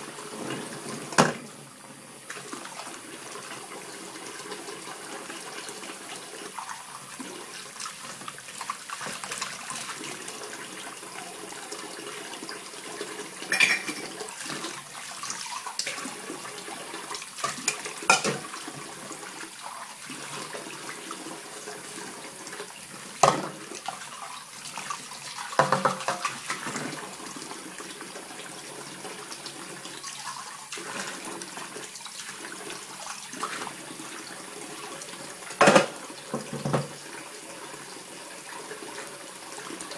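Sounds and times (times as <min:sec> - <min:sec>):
dishes and utensils clinking: 0:13.5 - 0:14.2, 0:17.4 - 0:18.4, 0:35.6 - 0:36.9
tap running into a metal pot: 0:17.4 - 0:18.4, 0:23.2 - 0:23.6, 0:25.6 - 0:26.3, 0:35.6 - 0:37.0.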